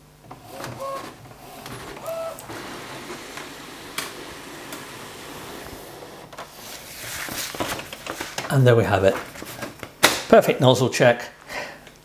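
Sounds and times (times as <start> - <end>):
inkjet printer running: 0.2 - 6.4
printer whine: 0.2 - 6.4.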